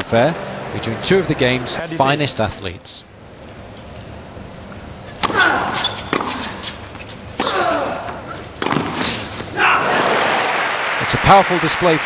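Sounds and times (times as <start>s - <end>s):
racket striking tennis ball: 5.1s - 9.5s.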